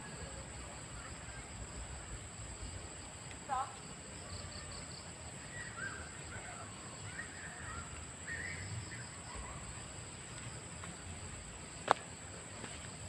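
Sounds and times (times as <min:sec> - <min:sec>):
faint bird calls: 0:04.4 - 0:09.8.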